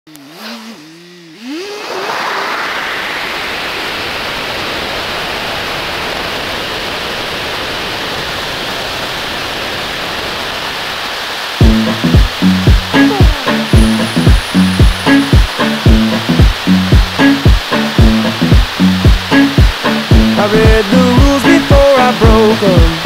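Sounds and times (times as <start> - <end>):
motorcycle engine revving: 0.1 - 23.0
wind rushing over microphone: 1.7 - 11.5.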